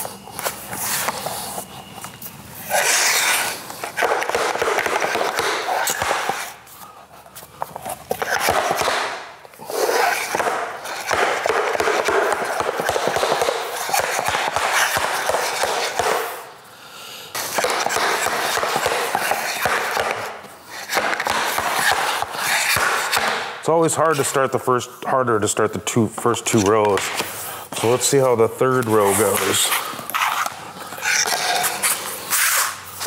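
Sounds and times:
floor planks scraping and sliding: 0:00.0 - 0:06.6, 0:07.4 - 0:16.4, 0:26.5 - 0:33.0.

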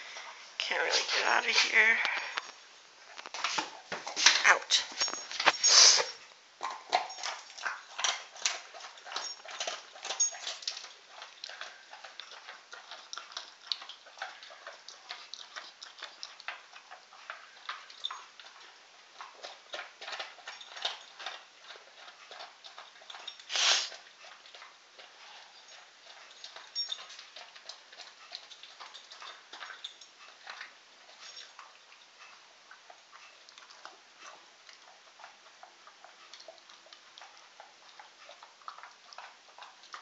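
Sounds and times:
dog chewing hard bone: 0:06.6 - 0:40.0.

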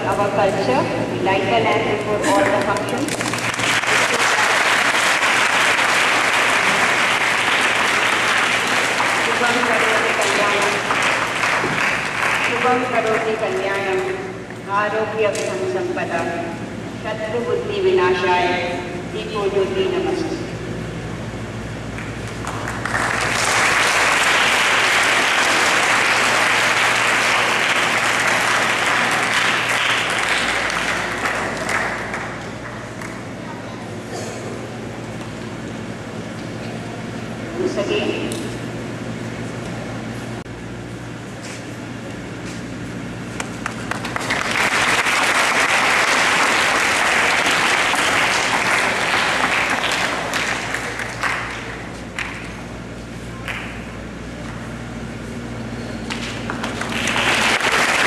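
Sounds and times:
audience clapping: 0:02.3 - 0:13.9, 0:21.9 - 0:33.3, 0:43.3 - 0:52.8, 0:53.4 - 0:54.0, 0:56.0 - 0:58.0
children applauding: 0:03.1 - 0:12.8, 0:22.0 - 0:33.2, 0:43.4 - 0:52.6, 0:56.0 - 0:58.0.

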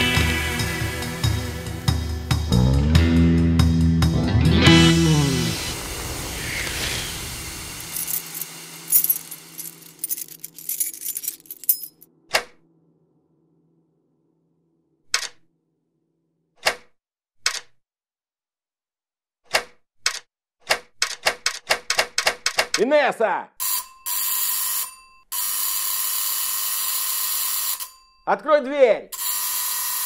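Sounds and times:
keys jangling at a lock: 0:07.8 - 0:12.0.

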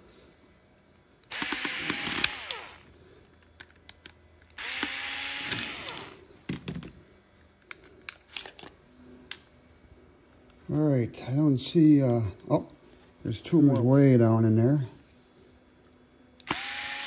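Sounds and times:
cordless screwdriver whining: 0:01.3 - 0:02.9, 0:04.5 - 0:06.2, 0:16.4 - 0:17.0
plastic parts clicking and knocking: 0:06.5 - 0:07.0.

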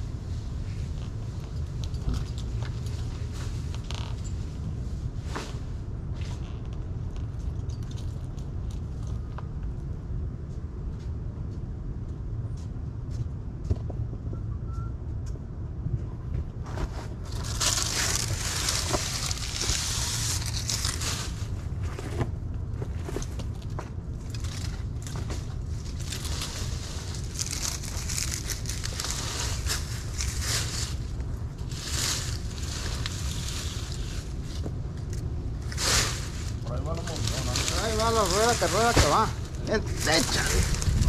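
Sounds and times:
low rumble: 0:00.0 - 0:41.0
dry palm fronds crackling: 0:16.8 - 0:41.0.

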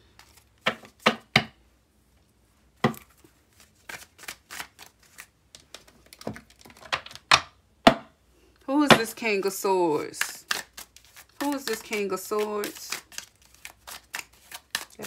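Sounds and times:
cards being shuffled: 0:00.2 - 0:01.0, 0:03.0 - 0:07.3, 0:10.1 - 0:15.0.

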